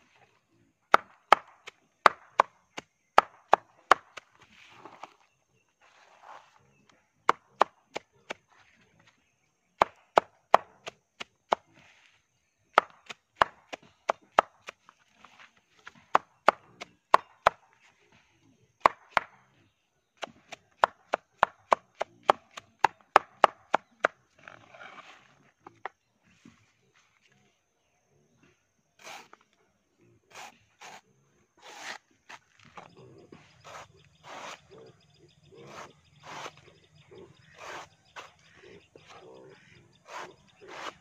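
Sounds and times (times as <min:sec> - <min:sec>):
machete chopping on wooden board: 0:00.9 - 0:05.2, 0:07.2 - 0:08.4, 0:09.8 - 0:11.7, 0:12.7 - 0:14.9, 0:15.8 - 0:17.7, 0:18.8 - 0:19.4, 0:20.2 - 0:24.2, 0:33.7 - 0:34.6, 0:35.7 - 0:36.6, 0:40.1 - 0:41.0.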